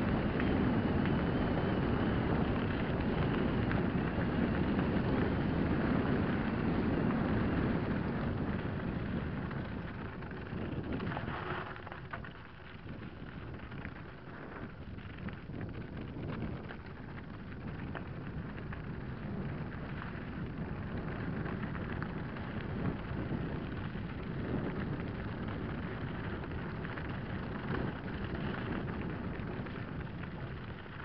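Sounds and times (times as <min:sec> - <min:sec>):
wind buffeting microphone: 0:00.0 - 0:31.0
tyres crunching over stones: 0:10.8 - 0:12.5.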